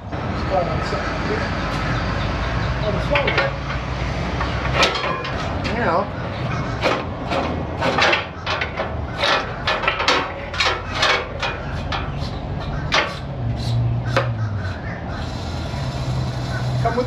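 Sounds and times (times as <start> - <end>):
metallic ratchet clicks and knocks: 4.4 - 5.8, 6.8 - 13.3.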